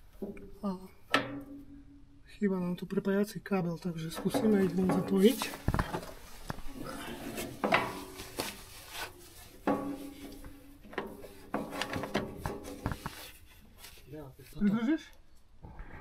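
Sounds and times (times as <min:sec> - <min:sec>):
knocks and scrapes: 0:04.0 - 0:14.5.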